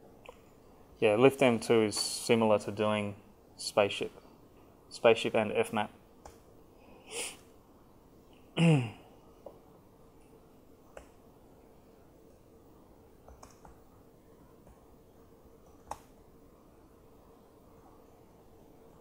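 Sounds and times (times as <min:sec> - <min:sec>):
man humming hmm: 0:08.6 - 0:09.1.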